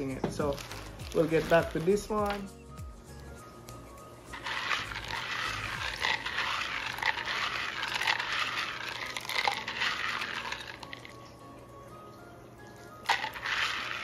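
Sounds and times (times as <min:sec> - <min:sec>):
plastic balls rattling in water: 0:00.0 - 0:02.5, 0:04.3 - 0:11.2, 0:13.0 - 0:14.0.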